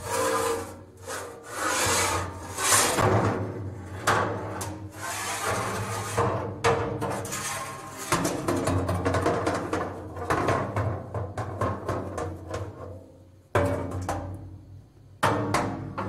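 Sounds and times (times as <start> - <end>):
strikes on a metal dumpster: 15.2 - 16.0.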